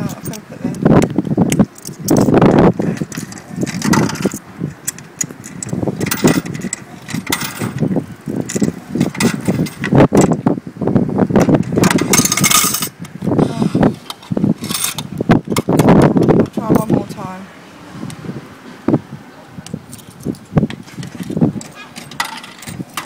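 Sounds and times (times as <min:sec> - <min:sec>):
coins clinking in parking meter: 0:03.0 - 0:10.3, 0:11.7 - 0:13.0, 0:19.9 - 0:23.0.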